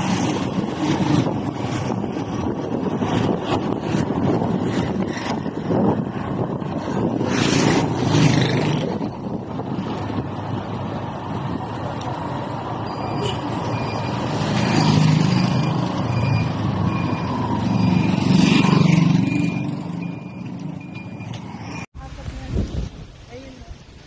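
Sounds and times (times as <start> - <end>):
vehicle engine and road noise: 0.0 - 24.0.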